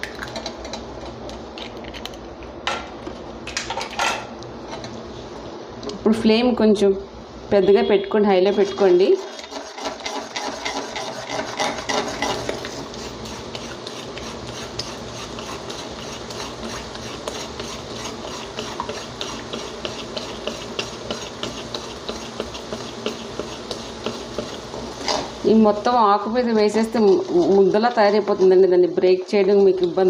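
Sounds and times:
spoon scraping eggs in metal pan: 8.6s - 25.5s, 26.2s - 30.0s.

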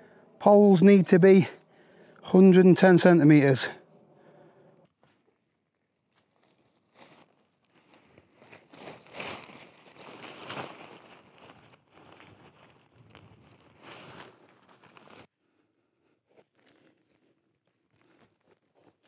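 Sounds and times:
tent fabric crinkling and rustling: 5.0s - 15.3s, 16.2s - 19.0s.

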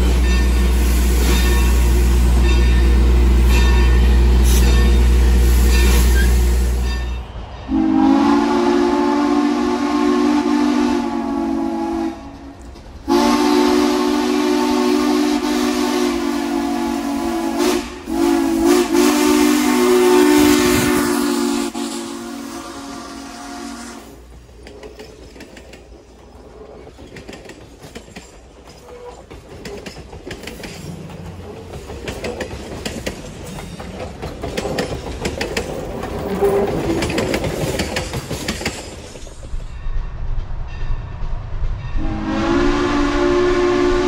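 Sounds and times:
steam locomotive whistle: 0.0s - 12.5s, 13.1s - 24.2s, 42.0s - 44.0s.

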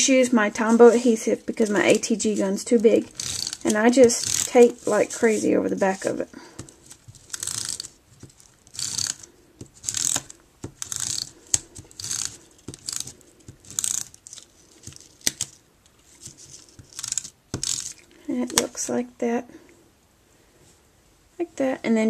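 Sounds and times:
tape runner rasping on paper: 1.6s - 5.5s, 6.6s - 15.6s, 16.2s - 18.1s.

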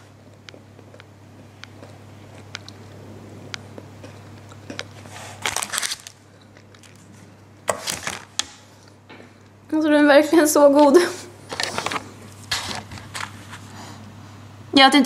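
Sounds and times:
chocolate being chewed: 0.1s - 8.2s
plastic wrapper crinkling: 5.4s - 8.6s.

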